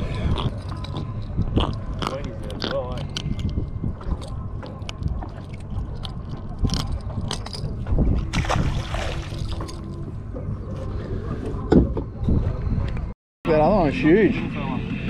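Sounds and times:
wind and water against hull: 0.0 - 15.0
fish splashing into water: 8.3 - 9.6.

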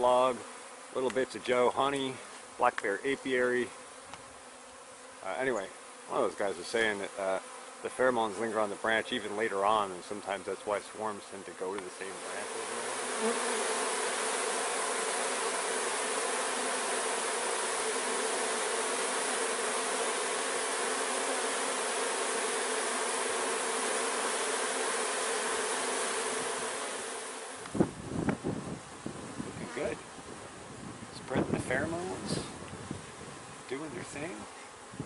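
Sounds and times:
bees buzzing: 0.0 - 35.0.

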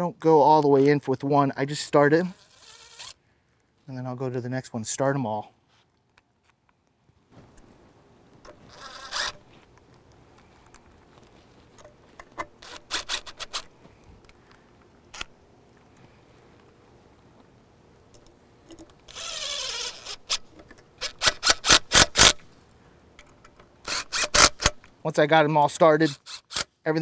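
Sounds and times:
drill running with falling whine: 19.1 - 20.4.

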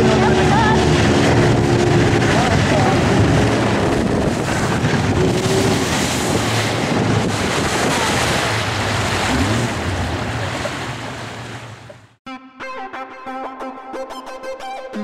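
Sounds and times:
wind buffeting microphone: 0.0 - 11.4
motorboat engine hum: 0.0 - 12.2
water rushing against hull: 0.0 - 12.2.

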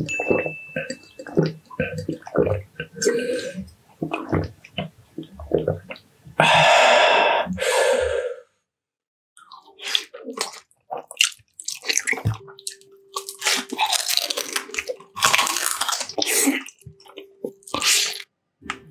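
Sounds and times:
wet squishy chewing: 0.0 - 6.4, 9.4 - 18.8
crunchy bites: 13.2 - 18.2.

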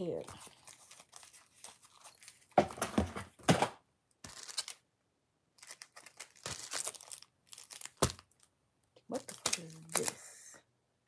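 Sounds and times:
plastic bag rustling and tearing: 0.1 - 3.6, 4.2 - 4.8, 5.6 - 8.5, 9.1 - 10.3.

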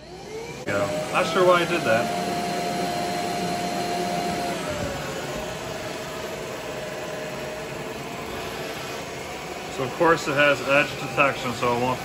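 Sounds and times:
robot vacuum motor whine: 0.0 - 12.0.

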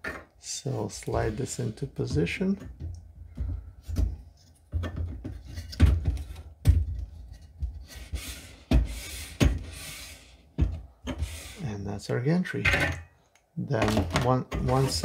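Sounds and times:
metal and plastic knocks and clunks: 2.1 - 7.8, 13.8 - 15.0.

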